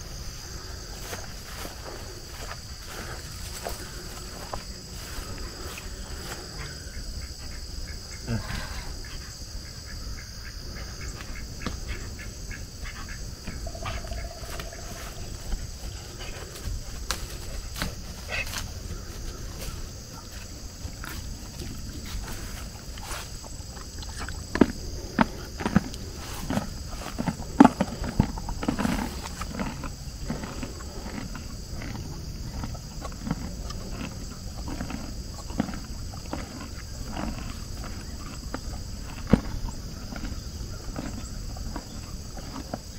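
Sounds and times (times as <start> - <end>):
donkeys chewing with crunches: 0.0 - 9.4, 12.8 - 42.9
crickets droning: 0.0 - 42.9
bird chirps: 13.5 - 15.6.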